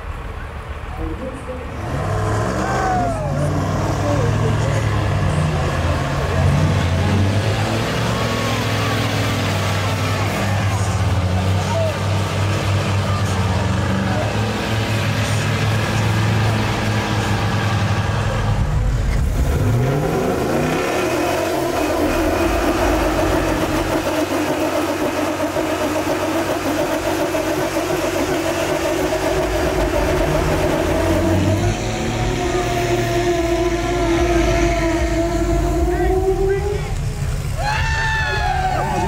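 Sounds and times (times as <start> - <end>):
truck engine revving whine: 0.0 - 39.0
truck engine idling low: 21.0 - 39.0.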